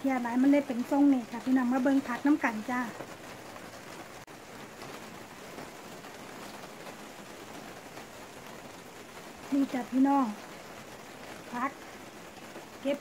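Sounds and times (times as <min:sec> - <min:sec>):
rain on plastic panels: 0:00.0 - 0:13.0.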